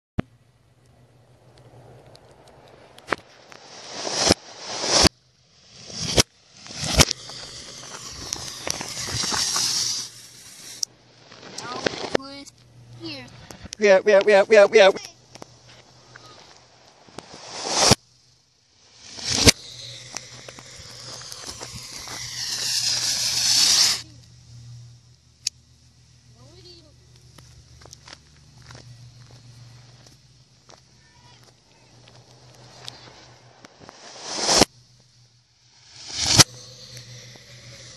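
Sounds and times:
reversed crackling and hissing: 1.2 - 37.9
reversed firework bangs: 1.7 - 12.2, 13.8 - 24.0, 31.8 - 37.9.

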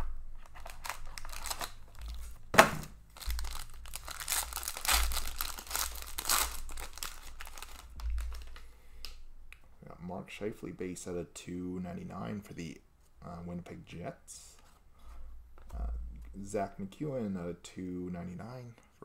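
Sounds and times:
foil wrapper crinkling and tearing: 0.4 - 2.4, 3.1 - 8.6.

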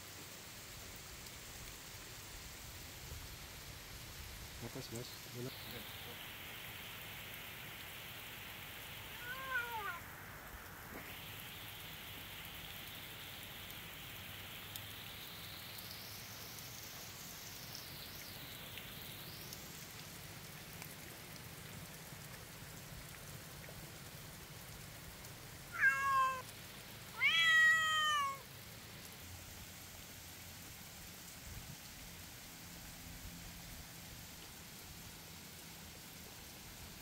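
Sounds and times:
faint steady hiss: 0.0 - 37.0
cat meowing: 9.2 - 10.0, 25.7 - 26.5, 27.1 - 28.4.

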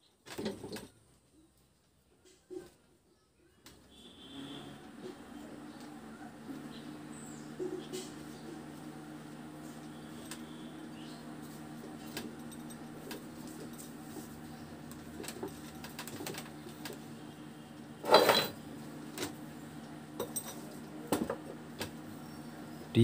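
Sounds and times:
steady low hum: 3.9 - 23.0
metal clatter: 18.0 - 18.6.

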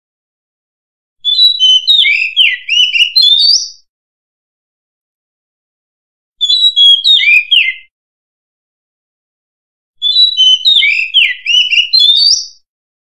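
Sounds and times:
magpie-robin singing whistled notes: 1.2 - 3.9, 6.4 - 7.9, 10.0 - 12.7.

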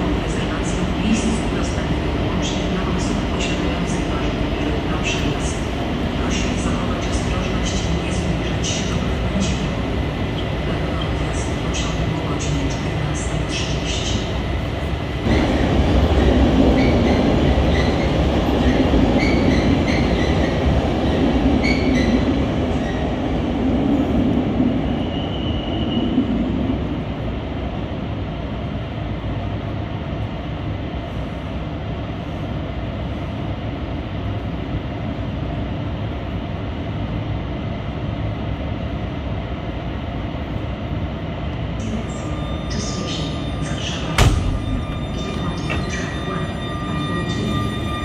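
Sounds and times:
locomotive rumbling hum: 41.4 - 48.0
sharp knock: 44.2 - 45.2.

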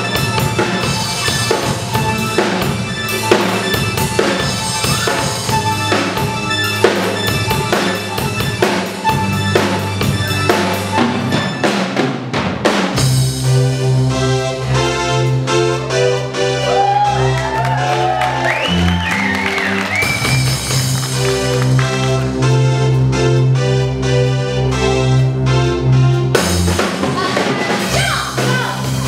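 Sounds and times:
drum kit hits: 0.0 - 13.7, 26.3 - 29.0
held keyboard chord: 0.0 - 27.4
rock band playing: 0.0 - 29.0.

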